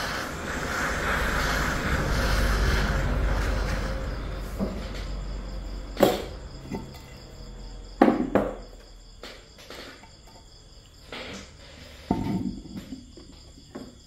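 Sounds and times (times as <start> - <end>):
crickets chirping: 0.0 - 14.0
metal knocks and clinks on concrete: 12.0 - 13.9.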